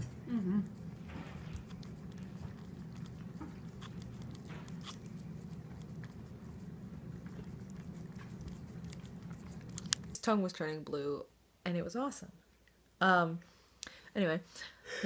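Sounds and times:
steady low hum: 0:00.0 - 0:10.6
cat licking: 0:00.1 - 0:10.2.

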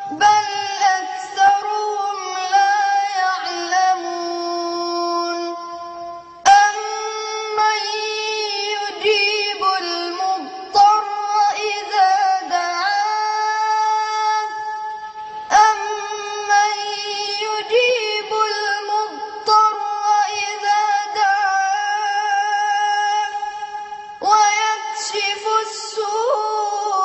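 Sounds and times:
boy singing solo: 0:24.2 - 0:27.0.

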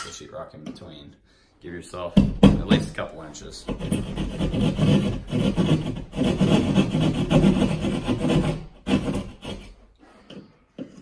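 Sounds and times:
hand tool scraping drywall: 0:03.4 - 0:11.0.

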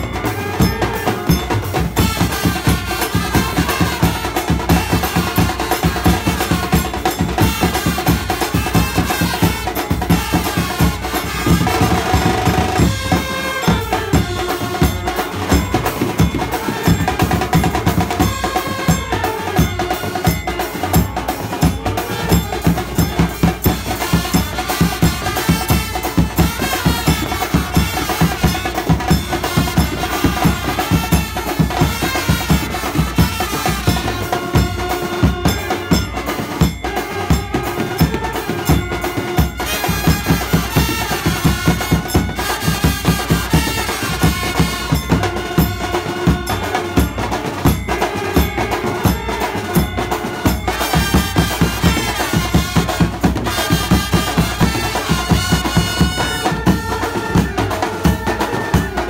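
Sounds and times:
fast driving drum beat: 0:00.0 - 0:59.0
trumpets and saxophones melody: 0:00.0 - 0:59.0.

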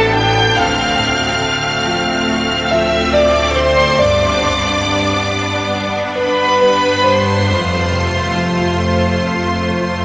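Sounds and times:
slow sustained instrumental music: 0:00.0 - 0:10.0.

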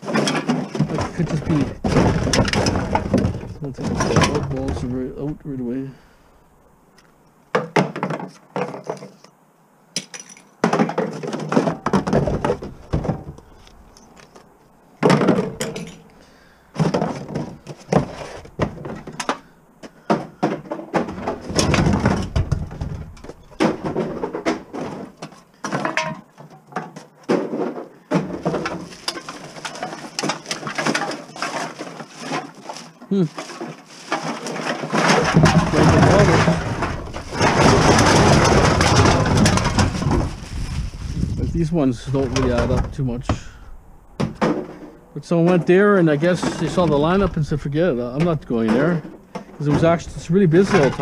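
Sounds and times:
empty bottles clattering: 0:15.0 - 0:40.3, 0:44.2 - 0:51.0.

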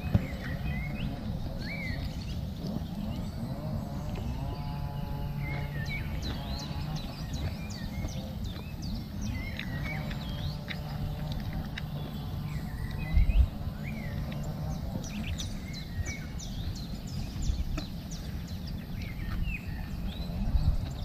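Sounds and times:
low rumbles: 0:00.0 - 0:21.0
small birds chirping: 0:00.0 - 0:21.0.

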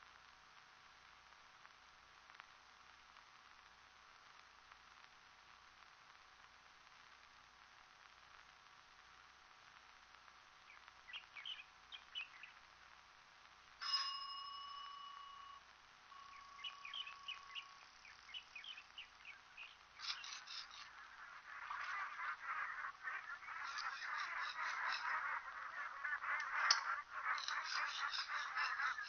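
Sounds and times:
small birds chirping: 0:10.6 - 0:12.7, 0:16.1 - 0:29.0
small metal bell ringing: 0:13.8 - 0:17.8
geese honking: 0:20.0 - 0:29.0.

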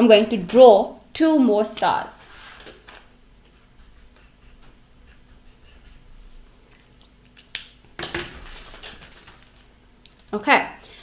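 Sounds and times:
paper rustling scrape: 0:02.3 - 0:03.0, 0:08.3 - 0:09.7
pencil scratching on paper: 0:03.6 - 0:06.5.

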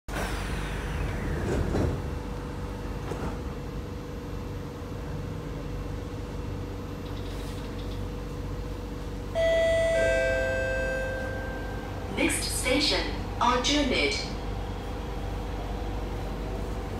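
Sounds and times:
steady hum inside train car: 0:00.1 - 0:16.9
two-note ding-dong chime: 0:09.4 - 0:11.6.

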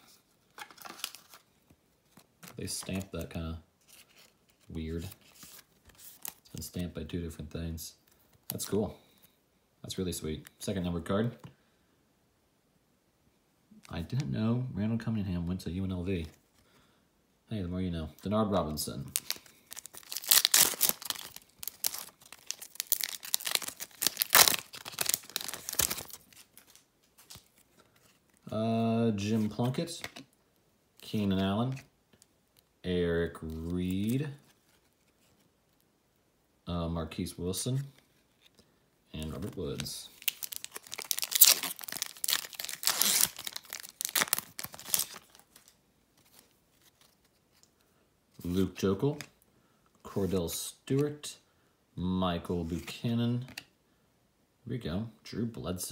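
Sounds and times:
foil wrapper tearing and crinkling: 0:19.1 - 0:27.5, 0:40.2 - 0:45.8.

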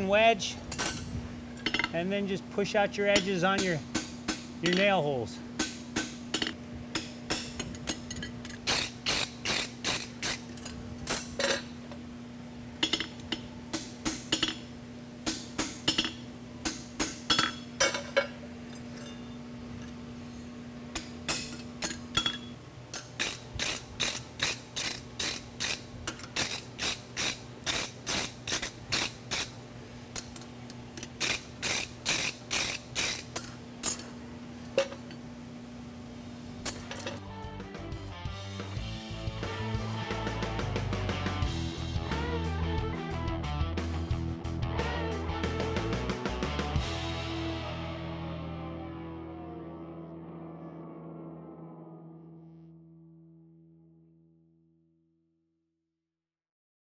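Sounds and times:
steady low hum: 0:00.0 - 0:42.9
hammer striking horseshoe on anvil: 0:03.1 - 0:05.0.

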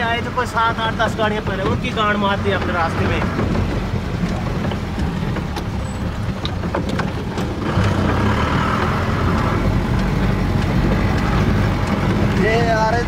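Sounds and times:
vehicle engine and road rumble: 0:00.0 - 0:13.0
small clicks and knocks: 0:01.3 - 0:12.9.

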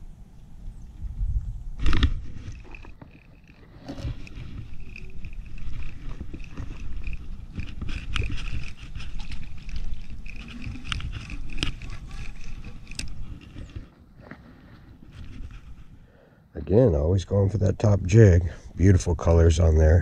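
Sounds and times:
wind rumbling on microphone: 0:00.0 - 0:13.9
fishing reel gear whir: 0:01.8 - 0:13.9
reel clicks: 0:01.8 - 0:13.9.

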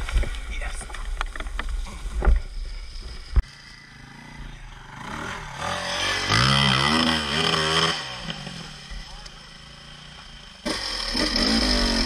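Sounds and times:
dirt bike engine revving: 0:02.9 - 0:12.0.

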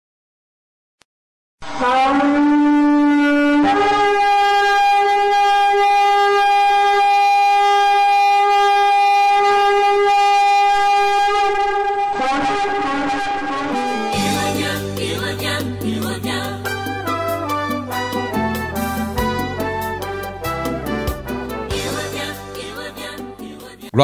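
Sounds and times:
ram's horn blast: 0:01.6 - 0:15.0.

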